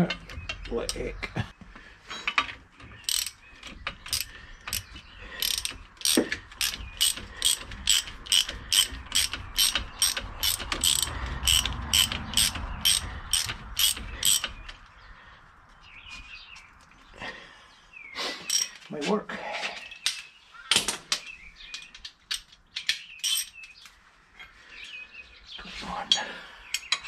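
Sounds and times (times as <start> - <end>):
ratchet wrench clicking: 3.0 - 3.4, 4.1 - 14.5, 23.2 - 23.5.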